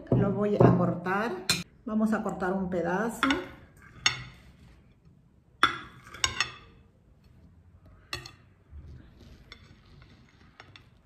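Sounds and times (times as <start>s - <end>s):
faint scraping: 7.2s - 11.0s.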